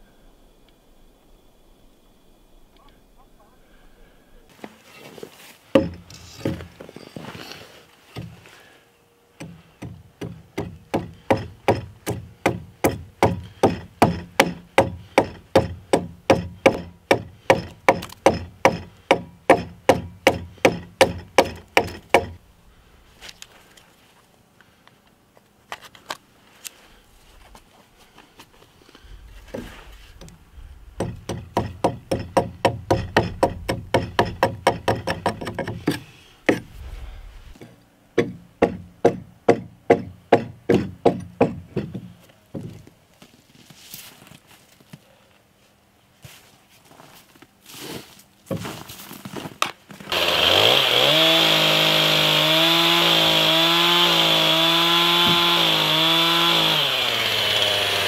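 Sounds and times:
axe striking chisel: 0:09.4 - 0:22.4, 0:31.0 - 0:36.7, 0:38.2 - 0:42.0.

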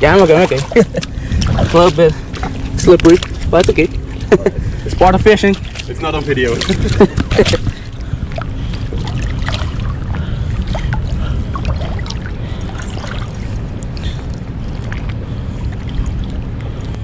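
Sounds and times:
steady low rumble: 0:00.0 - 0:17.0
water sloshing and splashing: 0:00.0 - 0:17.0.

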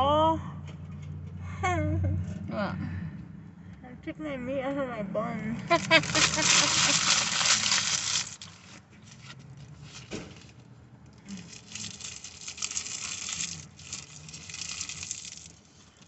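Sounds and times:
rustling and crinkling handling: 0:05.7 - 0:16.0.

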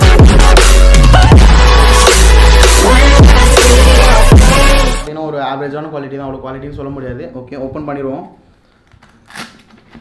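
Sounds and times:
electronic music with heavy bass: 0:00.0 - 0:05.1.

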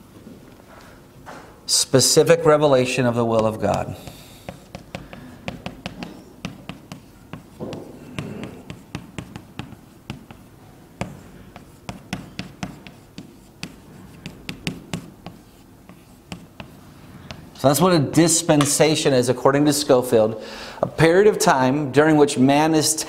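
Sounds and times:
chalk writing on chalkboard: 0:03.3 - 0:17.6.

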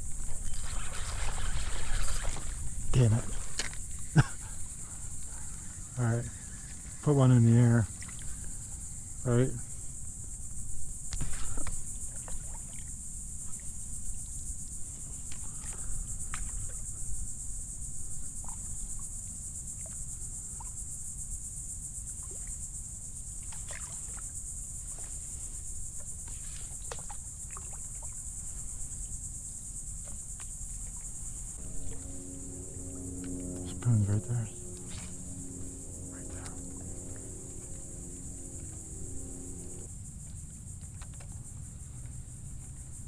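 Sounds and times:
low wind rumble: 0:00.0 - 0:07.0, 0:31.5 - 0:40.1
insects chirring: 0:00.0 - 0:43.0.

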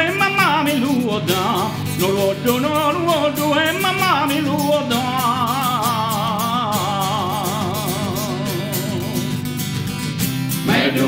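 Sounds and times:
male choir singing a cappella: 0:10.6 - 0:11.0.

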